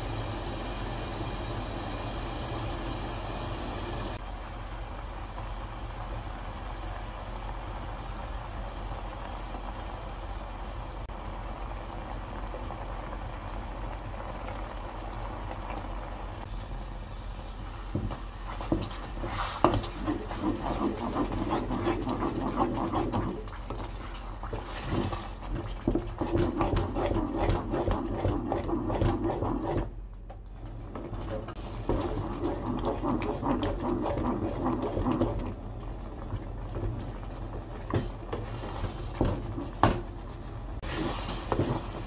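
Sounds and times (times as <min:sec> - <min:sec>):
wooden spatula scraping saucepan: 0:18.0 - 0:29.9, 0:31.0 - 0:35.6, 0:40.8 - 0:42.0.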